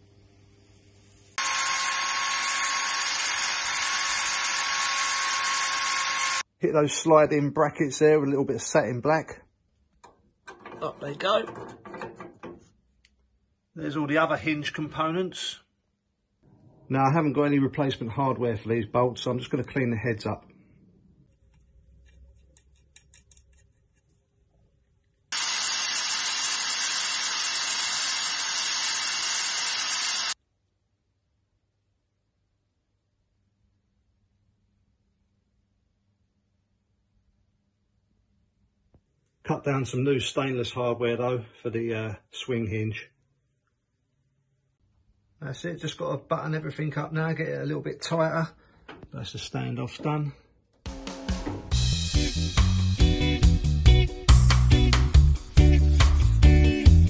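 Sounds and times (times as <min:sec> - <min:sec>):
wire brush drill scrubbing metal: 0:01.4 - 0:06.4, 0:25.3 - 0:30.4
metallic clicks of bolt in vice: 0:21.9 - 0:24.0.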